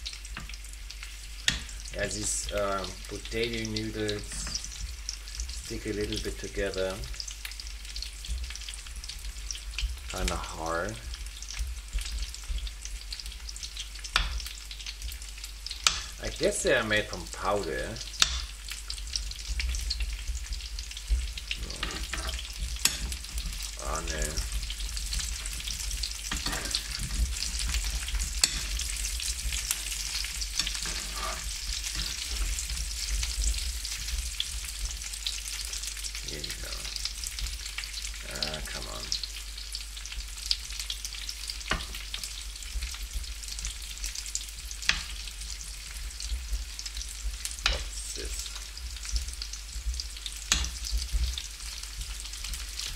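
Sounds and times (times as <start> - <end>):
food sizzling in oil: 0.0 - 52.9
clicks of food turned in pan: 1.4 - 1.8, 15.7 - 16.2, 18.1 - 18.6, 21.7 - 24.5, 26.3 - 33.3, 50.4 - 51.4.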